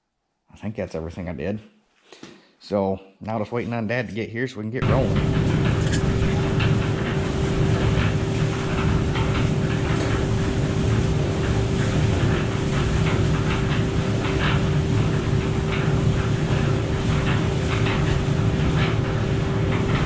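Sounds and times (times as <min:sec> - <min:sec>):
cement mixer running: 0:04.8 - 0:20.0
mix clattering in drum: 0:04.8 - 0:20.0.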